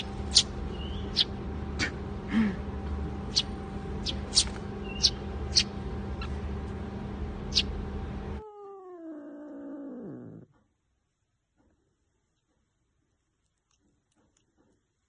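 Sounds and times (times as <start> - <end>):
sparrow chirps: 0.0 - 1.4, 3.2 - 6.4, 7.4 - 7.8
steady hum: 0.0 - 8.4.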